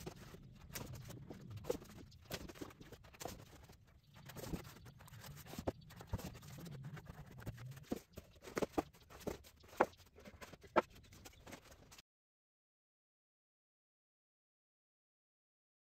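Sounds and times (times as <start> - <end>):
paper sheets rustling: 0.0 - 12.0.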